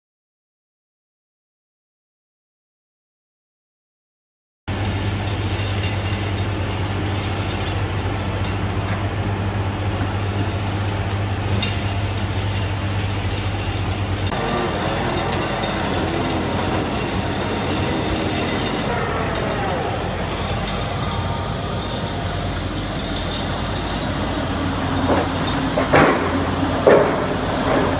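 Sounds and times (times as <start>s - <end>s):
wavering higher machine sound: 4.7s - 26.9s
piling rig low hum: 4.7s - 27.9s.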